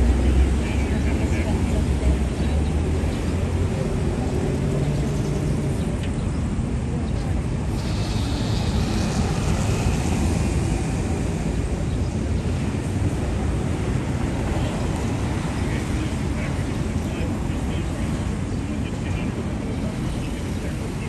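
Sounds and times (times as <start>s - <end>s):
low rumble of road traffic: 0.0s - 21.0s
higher hiss: 7.7s - 11.2s.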